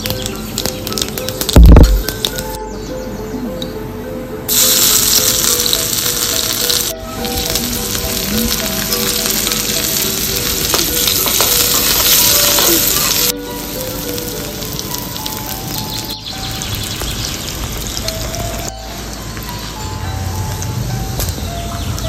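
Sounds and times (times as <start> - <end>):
potatoes sizzling in hot oil: 0.0 - 2.5, 4.5 - 18.7.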